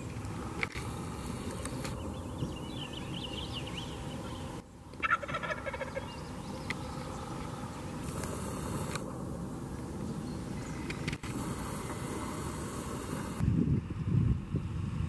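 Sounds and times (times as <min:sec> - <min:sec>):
turkey gobbling: 0:05.0 - 0:06.2.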